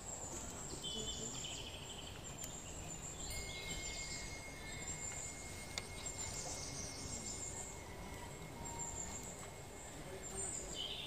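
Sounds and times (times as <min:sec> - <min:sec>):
insects chirring: 0:01.5 - 0:11.0
thin high tone: 0:03.0 - 0:11.0.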